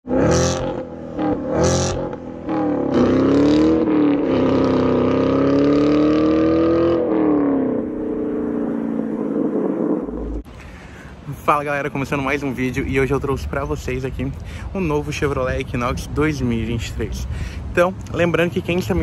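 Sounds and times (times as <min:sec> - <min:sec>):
car engine revving: 0:00.0 - 0:10.5.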